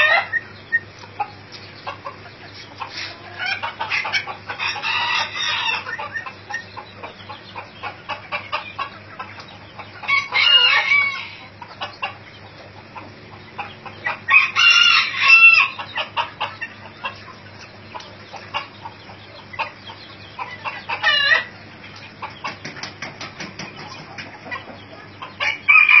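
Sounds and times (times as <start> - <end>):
chickens clucking: 0.0 - 26.0
rooster crowing: 4.5 - 6.1, 10.1 - 11.6, 14.3 - 15.8, 25.4 - 26.0.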